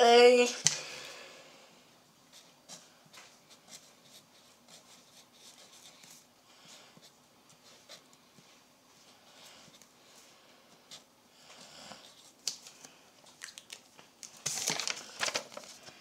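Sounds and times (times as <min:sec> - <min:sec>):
pen scratching on paper: 0:03.5 - 0:06.2.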